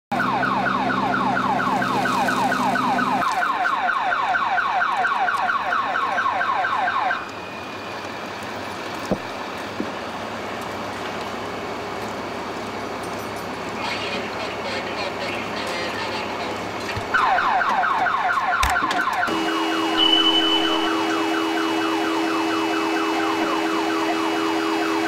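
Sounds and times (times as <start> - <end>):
car alarm chirping: 17.2 - 25.0.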